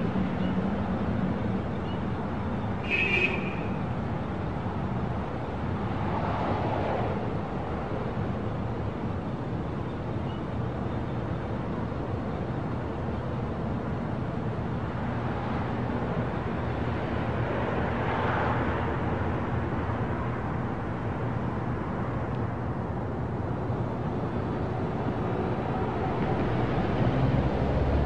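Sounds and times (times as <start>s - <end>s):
street traffic hum: 0.0s - 28.0s.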